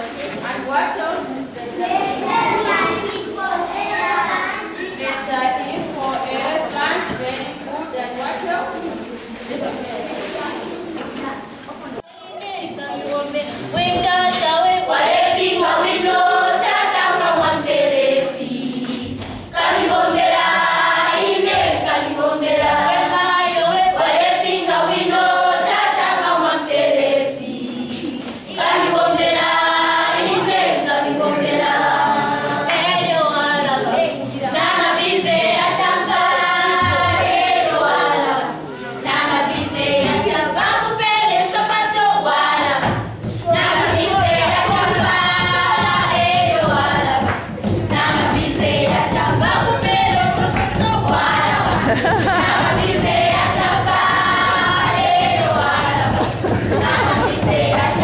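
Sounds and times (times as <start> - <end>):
choir singing: 13.6 - 58.0.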